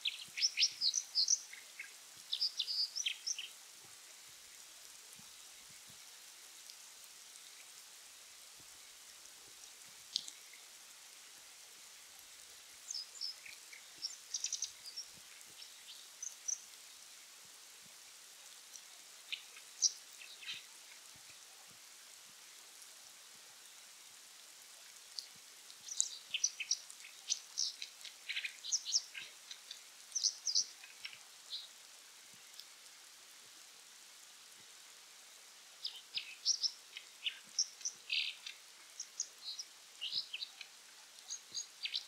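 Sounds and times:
light rain pattering on water: 0.0 - 42.0
bird chirping and trilling: 35.8 - 40.6.

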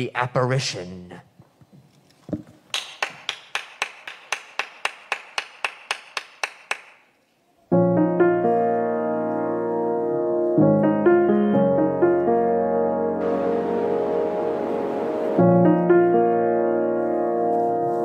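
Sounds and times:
piano chords: 7.7 - 18.0.

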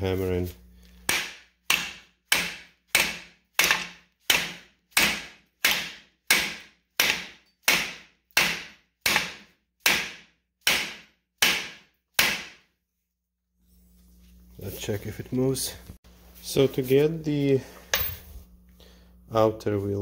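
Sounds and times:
hammer striking steel socket: 17.9 - 18.4.

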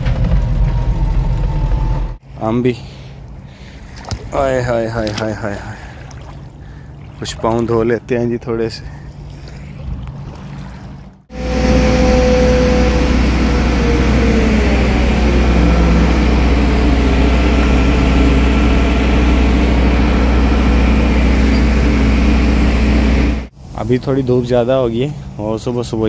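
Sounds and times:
diesel engine droning: 0.0 - 3.9, 11.2 - 23.5.

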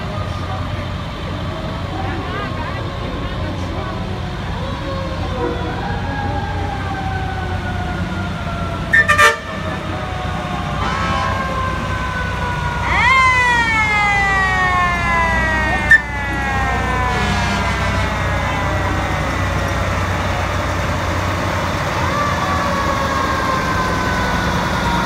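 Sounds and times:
fire truck siren: 0.0 - 25.0
low rumble of truck engines: 0.0 - 25.0
loud horn blasts: 8.9 - 9.9, 10.7 - 11.7, 15.8 - 16.1, 17.0 - 18.4.

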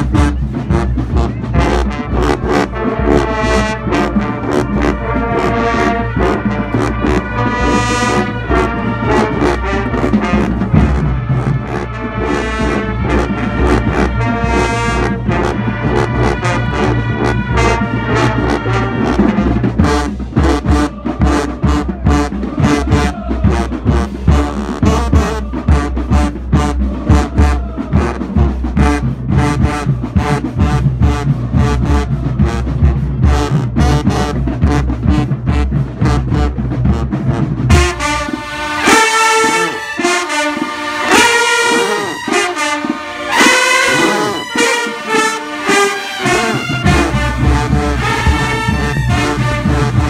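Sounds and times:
brass horn lines: 0.0 - 50.0
marching band playing: 0.0 - 50.0
steady drum beat: 0.0 - 50.0.

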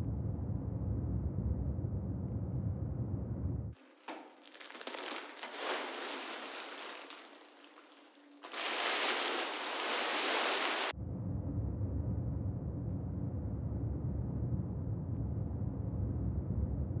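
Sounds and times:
crackly rain-like hiss: 3.8 - 10.9.

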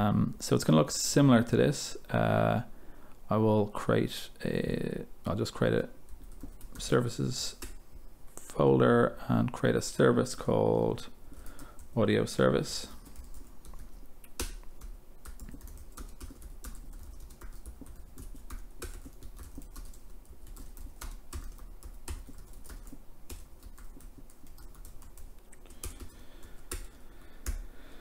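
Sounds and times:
computer keyboard typing: 6.1 - 7.8, 12.8 - 27.6.

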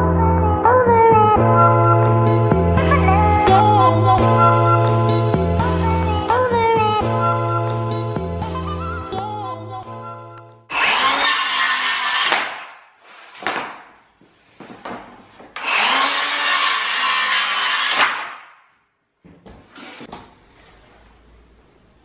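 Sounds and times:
circular saw cutting board: 10.7 - 13.5, 15.6 - 18.4.

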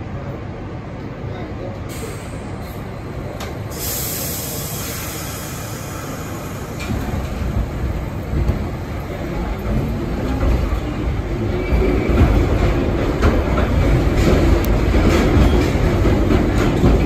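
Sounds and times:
subway train rumble: 0.0 - 17.0
brief hiss: 3.7 - 7.1.

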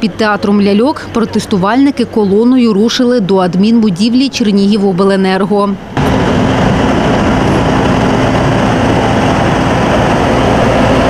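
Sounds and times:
diesel engine driving past: 6.0 - 11.0.

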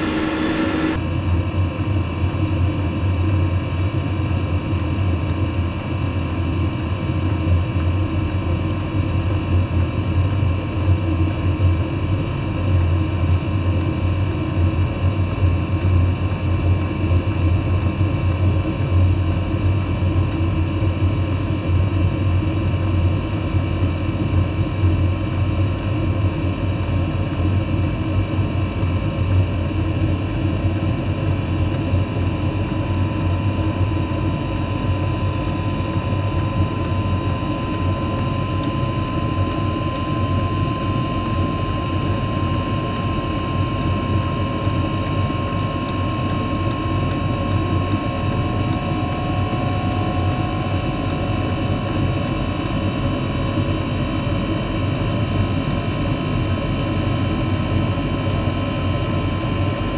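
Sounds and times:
thin whine: 0.0 - 1.1, 27.4 - 59.9
air heater fan and burner noise: 0.0 - 59.9.

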